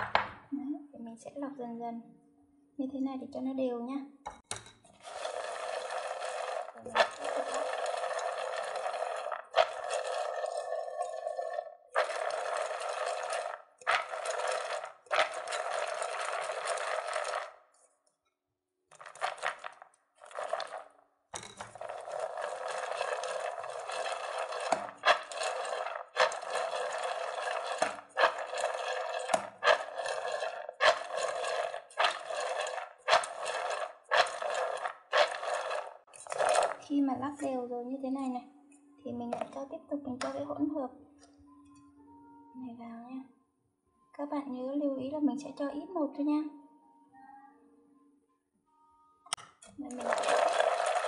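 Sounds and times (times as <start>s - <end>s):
peanuts rattling in metal pot: 5.0s - 10.4s, 12.0s - 17.5s, 21.7s - 36.8s, 49.8s - 51.0s.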